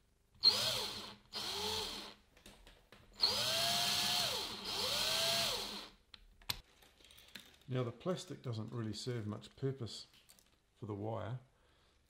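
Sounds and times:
cordless drill motor whine: 0:00.4 - 0:02.1, 0:03.2 - 0:05.9.

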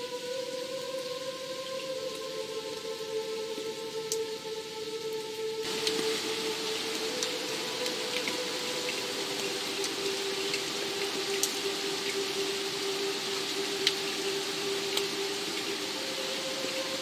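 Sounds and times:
soft music drone: 0:00.0 - 0:17.0
steady rain hiss: 0:00.0 - 0:17.0
water drops ticking: 0:03.6 - 0:17.0.

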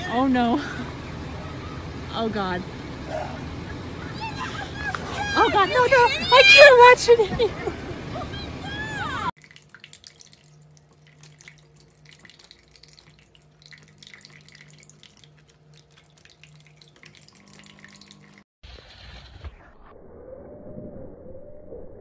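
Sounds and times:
low steady hum: 0:00.0 - 0:18.4
water dripping and splashing: 0:09.4 - 0:18.5.

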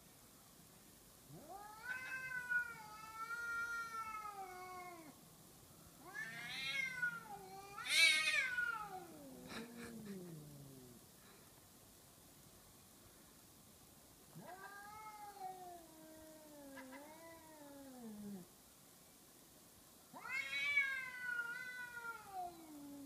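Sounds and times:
cats caterwauling: 0:01.3 - 0:05.2, 0:06.0 - 0:11.0, 0:14.3 - 0:18.5, 0:20.2 - 0:23.0.

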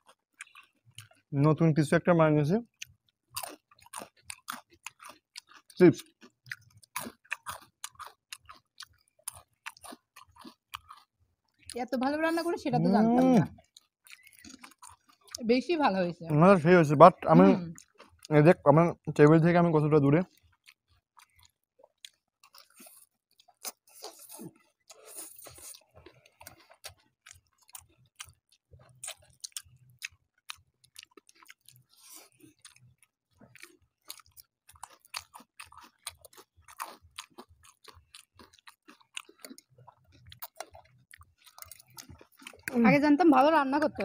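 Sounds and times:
people chewing and slurping noodles: 0:00.0 - 0:02.0, 0:02.6 - 0:15.5, 0:16.3 - 0:44.0.

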